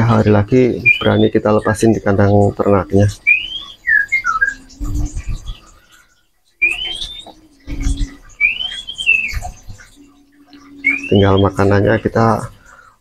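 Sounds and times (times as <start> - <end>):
bird rising whistles: 3.3 - 4.8, 6.6 - 9.6, 10.5 - 11.6.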